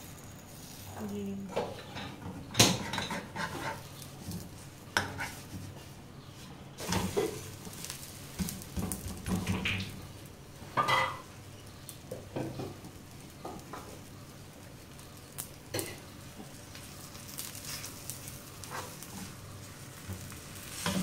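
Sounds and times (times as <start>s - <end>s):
utensils scraping a frying pan: 0.6s - 5.8s, 6.8s - 9.0s, 17.0s - 21.0s.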